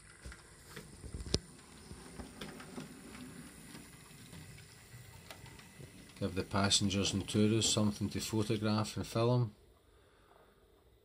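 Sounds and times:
wheels ticking over rail joints: 0.0s - 8.8s
model train motor hum: 1.5s - 9.4s.

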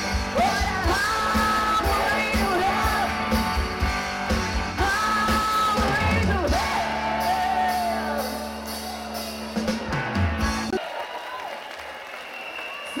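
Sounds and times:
person singing: 0.0s - 3.6s, 4.8s - 9.2s.

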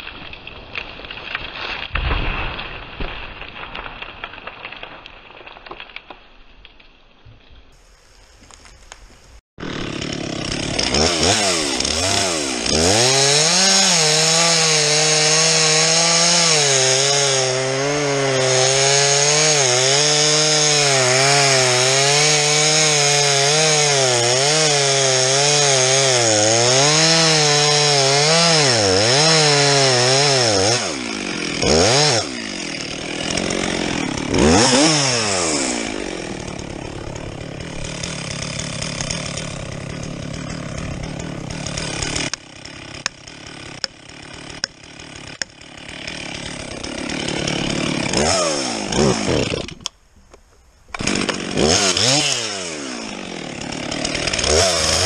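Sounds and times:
chainsaw idling: 9.6s - 49.9s, 51.0s - 55.0s
chainsaw cutting tree trunk: 9.6s - 50.0s, 50.9s - 55.0s.

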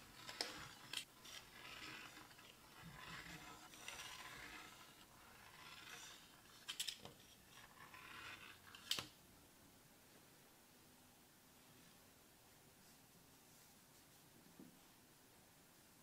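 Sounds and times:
blade scraping through dough: 0.0s - 9.0s.

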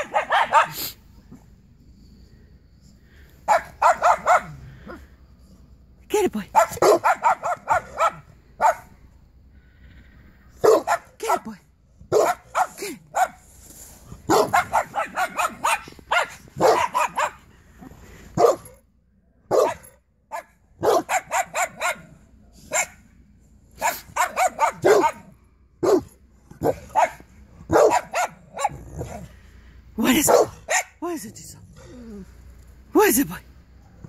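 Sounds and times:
dogs barking: 0.0s - 0.9s, 3.5s - 5.0s, 6.5s - 9.0s, 10.6s - 11.4s, 12.1s - 13.4s, 14.3s - 17.5s, 18.4s - 18.8s, 19.5s - 23.0s, 23.8s - 29.3s, 30.2s - 31.0s.

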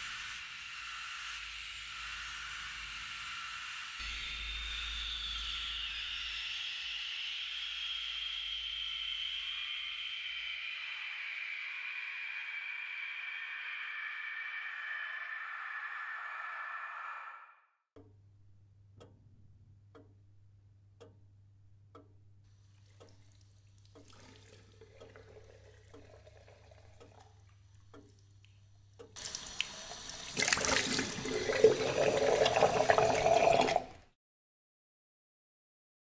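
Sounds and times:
slow ticking: 18.0s - 29.8s
tap running into sink: 29.2s - 33.9s.

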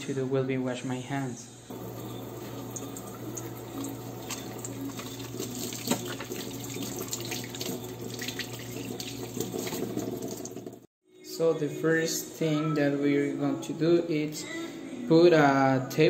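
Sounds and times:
faucet running into sink: 1.7s - 10.9s.

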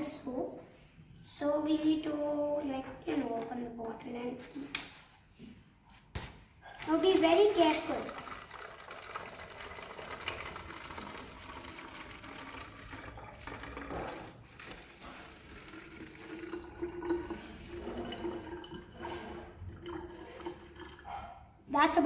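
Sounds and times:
liquid pouring into bottle: 6.7s - 21.4s.

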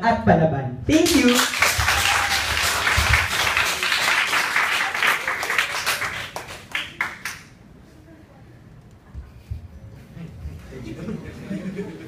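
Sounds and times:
applause: 0.9s - 7.5s.

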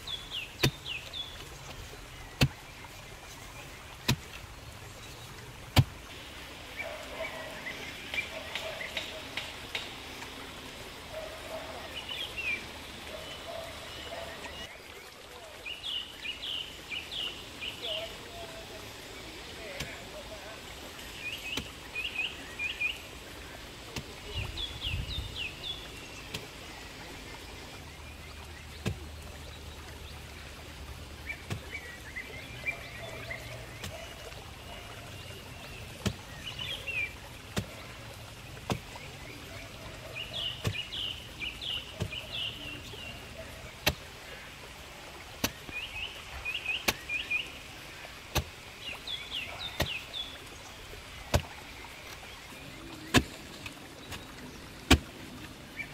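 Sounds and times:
birds chirping: 0.0s - 55.9s
digging tool striking earth: 4.0s - 4.3s, 5.7s - 6.0s, 37.5s - 37.7s, 45.4s - 45.7s, 46.8s - 47.1s, 48.3s - 48.6s, 53.1s - 53.4s, 54.1s - 55.2s.

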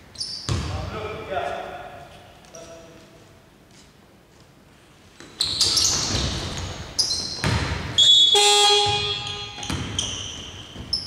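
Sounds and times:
sneakers squeaking: 0.0s - 0.9s, 5.2s - 11.0s
ball bouncing: 5.2s - 11.0s
electronic buzzer horn: 8.0s - 9.6s.

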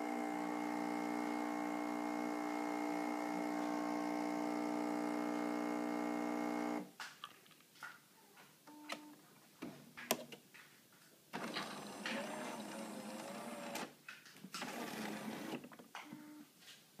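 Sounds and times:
coffee machine motor whirring: 0.0s - 6.8s, 11.4s - 13.9s, 14.6s - 15.6s.

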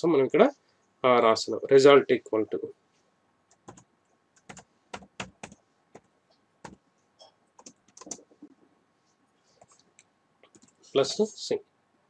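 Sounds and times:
typing on a computer keyboard: 3.5s - 6.8s, 7.6s - 8.4s, 10.5s - 10.8s.

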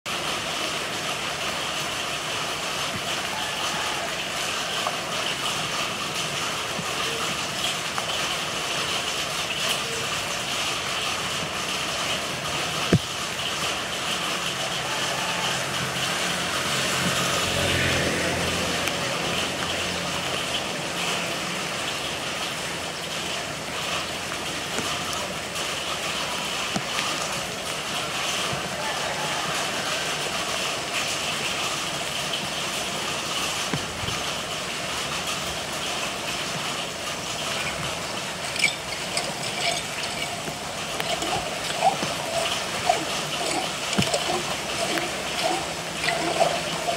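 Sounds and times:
rain and running water: 0.0s - 46.9s
vehicle engine passing: 15.4s - 22.4s, 37.4s - 46.9s.

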